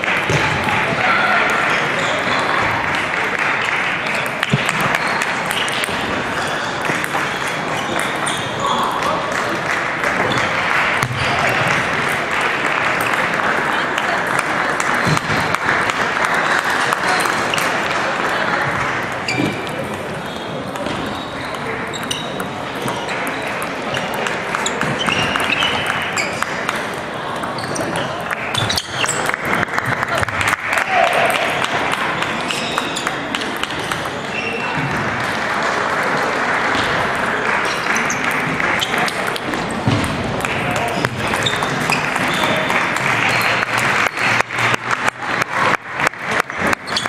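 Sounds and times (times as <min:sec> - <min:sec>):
spectators applauding: 0:00.0 - 0:08.0, 0:08.6 - 0:19.3, 0:28.0 - 0:47.0
table tennis balls tapping: 0:06.8 - 0:08.4, 0:19.3 - 0:30.5, 0:31.9 - 0:34.9, 0:38.4 - 0:43.8.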